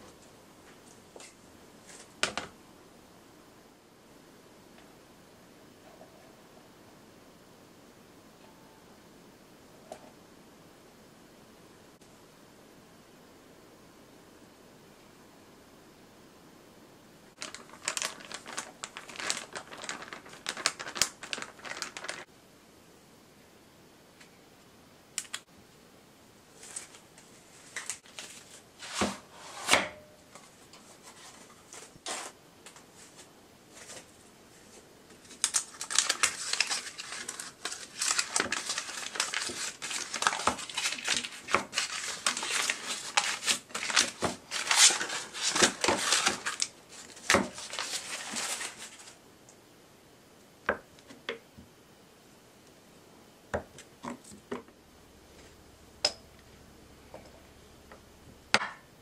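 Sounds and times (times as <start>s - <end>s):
paper wrapper crinkling and tearing: 17.4s - 22.3s, 26.6s - 29.2s, 30.4s - 49.2s.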